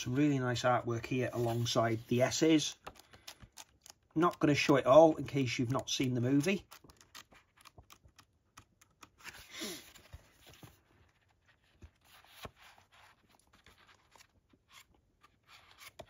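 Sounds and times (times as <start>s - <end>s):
book pages turning: 1.0s - 16.0s.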